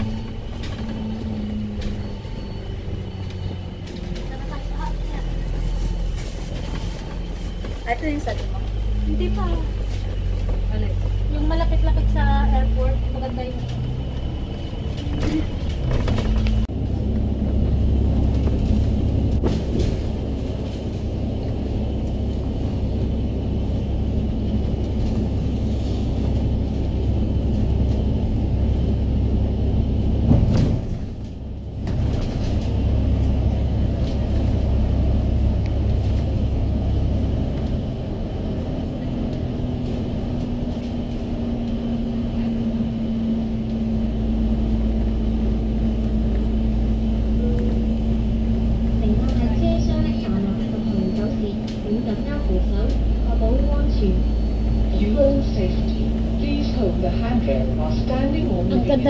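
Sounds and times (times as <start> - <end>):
bus engine and tyre rumble: 0.0 - 59.0.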